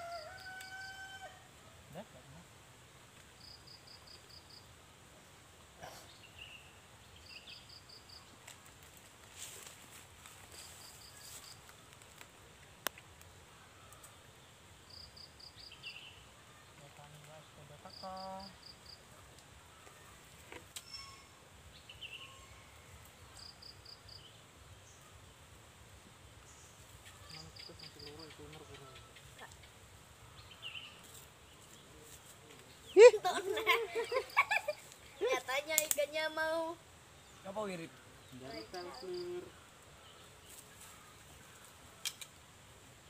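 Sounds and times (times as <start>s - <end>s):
high chirping trills: 20.8s - 24.2s.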